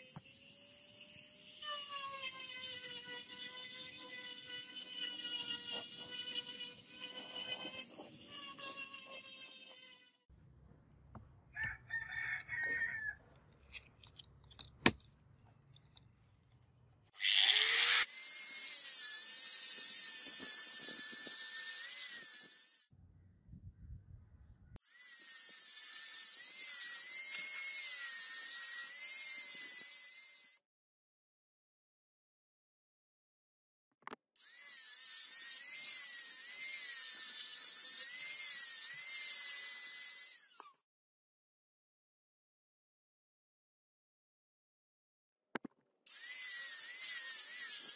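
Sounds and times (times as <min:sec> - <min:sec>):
angle grinder sanding steel: 0:00.0 - 0:10.2, 0:17.1 - 0:22.9, 0:24.9 - 0:30.6, 0:34.4 - 0:40.6, 0:46.1 - 0:47.9
rooster crowing: 0:11.5 - 0:13.2.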